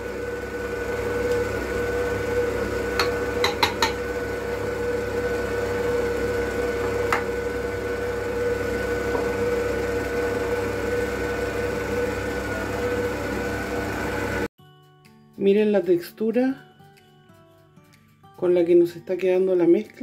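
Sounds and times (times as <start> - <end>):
stand mixer motor running: 0.0 - 14.5
glass dish clicking on steel bowl: 3.0 - 4.0.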